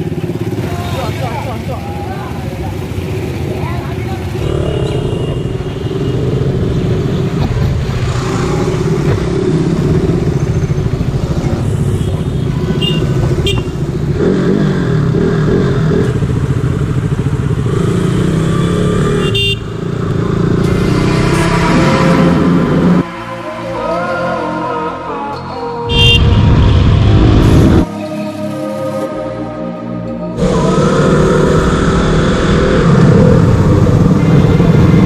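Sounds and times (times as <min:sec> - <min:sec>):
motorcycle engine running: 0:00.0 - 0:23.0
short horn toots: 0:25.9 - 0:26.5.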